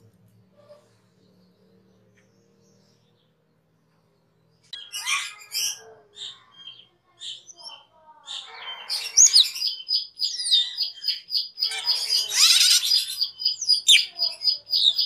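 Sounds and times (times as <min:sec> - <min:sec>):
starling chirping and whistling: 0:08.4 - 0:15.0.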